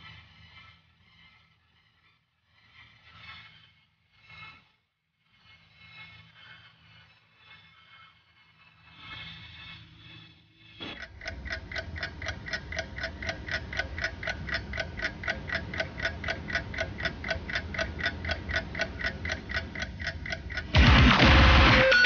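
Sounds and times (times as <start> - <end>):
rapid mechanical ticking: 8.8 - 22.0.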